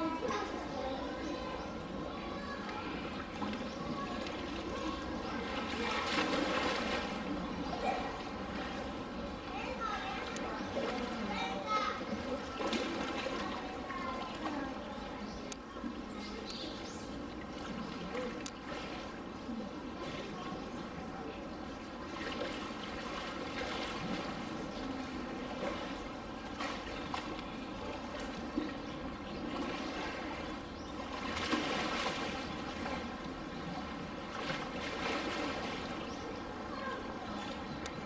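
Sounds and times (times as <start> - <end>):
water running and splashing: 2.7 - 8.8, 22.0 - 36.2.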